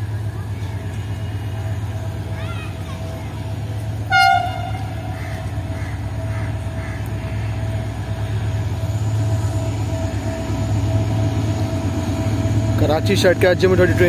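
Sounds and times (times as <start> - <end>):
diesel locomotive rumbling: 0.0 - 14.0
train horn blast: 4.0 - 5.3.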